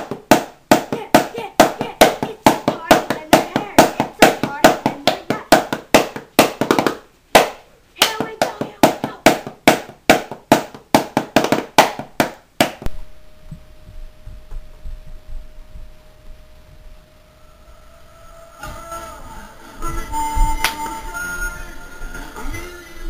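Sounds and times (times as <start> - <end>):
clap-like percussive strikes: 0.0 - 13.0
steady hum: 0.0 - 23.0
faint low rumble: 12.8 - 22.6.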